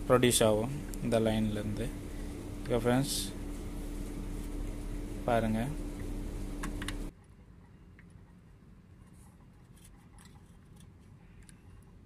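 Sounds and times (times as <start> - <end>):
steady background hum: 0.0 - 12.0
screwdriver clicking and scraping: 9.6 - 11.6.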